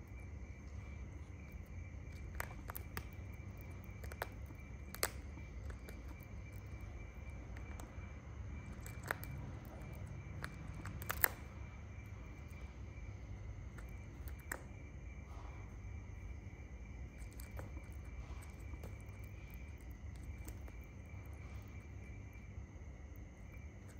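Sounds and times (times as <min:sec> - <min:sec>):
steady low hum: 0:00.0 - 0:23.9
beak tearing flesh clicks: 0:03.9 - 0:06.2, 0:08.8 - 0:11.4.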